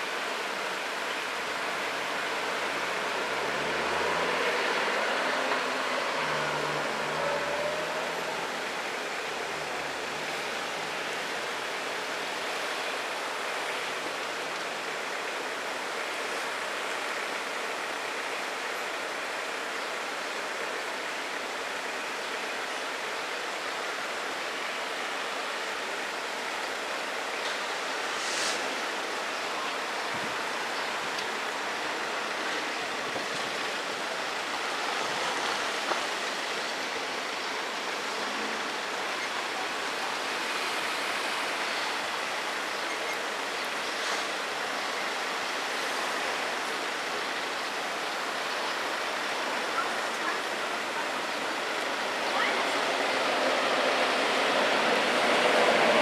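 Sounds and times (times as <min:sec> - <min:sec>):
steady outdoor hiss: 0:00.0 - 0:56.0
brief high hiss: 0:28.1 - 0:28.8.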